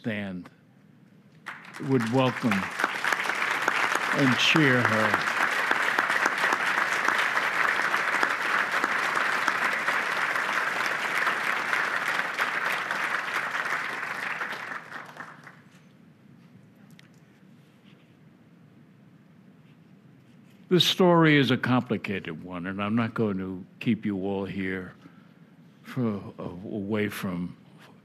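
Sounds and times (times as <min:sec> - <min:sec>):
audience applauding: 0:01.4 - 0:15.7.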